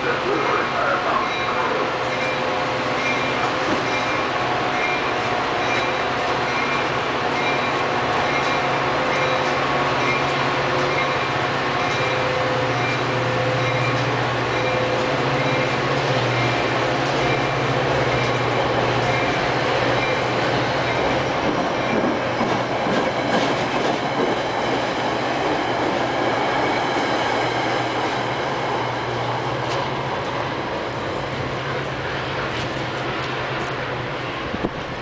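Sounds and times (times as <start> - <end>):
train wheels rumbling on rails: 0.0 - 35.0.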